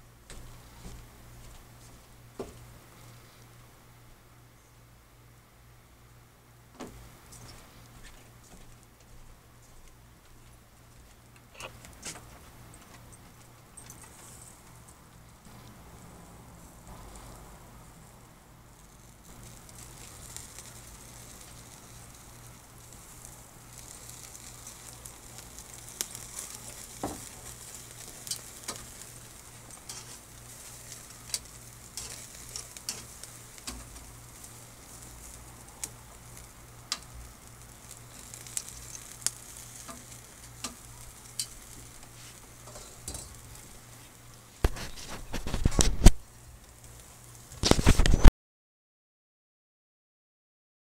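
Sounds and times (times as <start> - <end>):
food sizzling on charcoal grill: 0.0 - 4.1, 6.7 - 48.3
rustling noise: 6.8 - 17.8, 18.8 - 36.5, 37.6 - 48.3.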